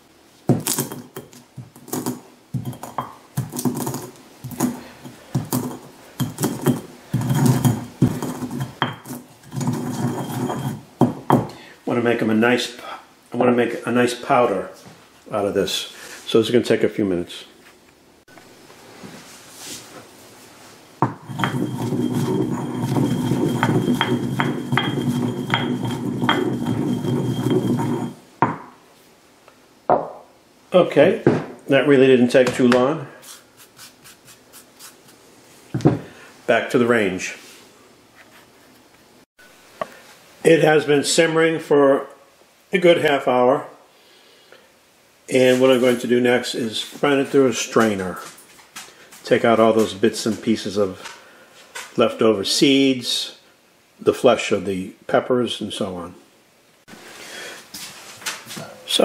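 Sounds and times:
stone pestle knocking on stone: 0:00.5 - 0:11.5, 0:21.0 - 0:28.8, 0:29.9 - 0:30.2
spices crunching and scraping: 0:00.6 - 0:10.8, 0:21.2 - 0:28.2
stone knock: 0:21.0 - 0:28.8, 0:29.9 - 0:30.2.

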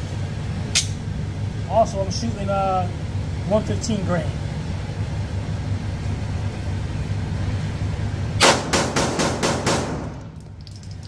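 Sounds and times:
low steady hum: 0:00.0 - 0:11.0
pistol shots echoing indoors: 0:08.4 - 0:10.2.

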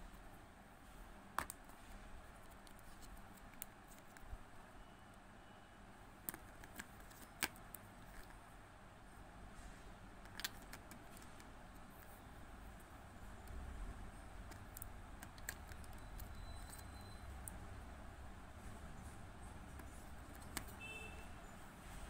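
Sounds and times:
plastic paint jars clicking: 0:14.4 - 0:16.8.

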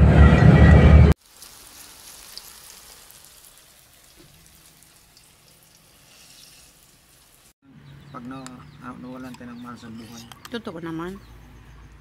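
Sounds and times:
faint crackling hiss: 0:01.2 - 0:07.5.

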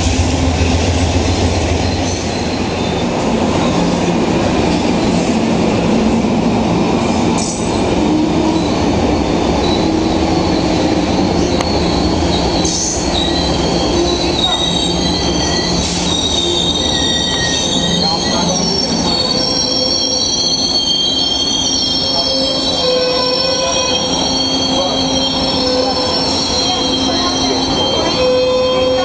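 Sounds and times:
train wheels rumbling on rail: 0:00.0 - 0:29.0
wheels squealing: 0:08.5 - 0:29.0.

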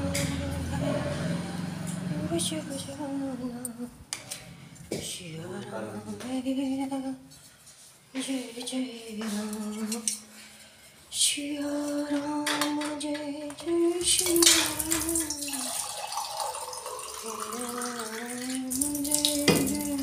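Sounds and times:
water tap running: 0:14.2 - 0:20.0.

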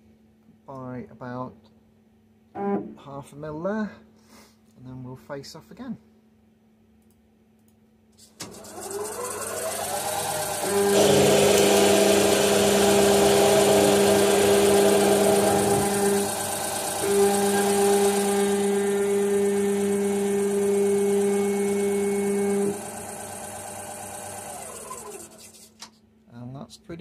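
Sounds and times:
humming whine of drive: 0:08.4 - 0:25.7
lathe spindle hissing: 0:08.5 - 0:25.6.

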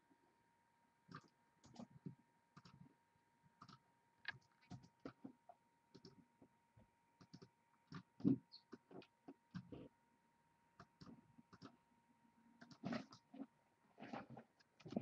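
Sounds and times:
faint steady high whine: 0:00.0 - 0:15.0
mouse and keyboard clicks: 0:02.6 - 0:02.8, 0:10.8 - 0:11.8.

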